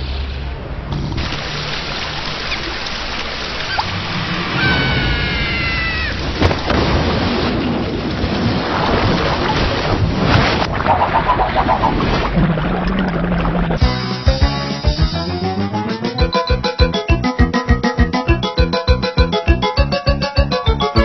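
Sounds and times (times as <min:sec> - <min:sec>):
heavy rain pouring: 0:01.0 - 0:10.7.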